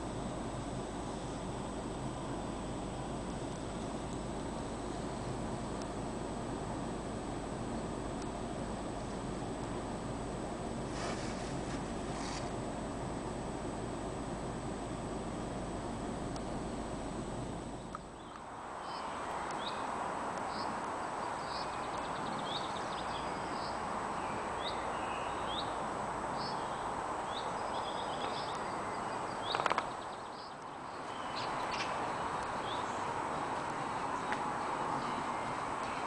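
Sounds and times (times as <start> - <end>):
outdoor background hiss: 0.0 - 36.0
small birds chirping: 17.7 - 36.0.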